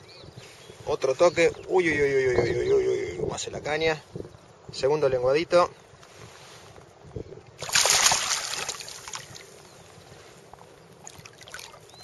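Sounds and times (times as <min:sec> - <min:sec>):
water splashing: 0:07.6 - 0:09.5, 0:11.0 - 0:12.0.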